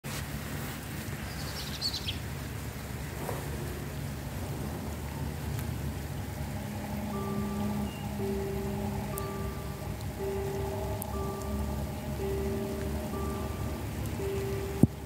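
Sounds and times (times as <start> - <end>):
low outdoor background hum: 0.1 - 15.0
high bird chirp: 6.7 - 14.8.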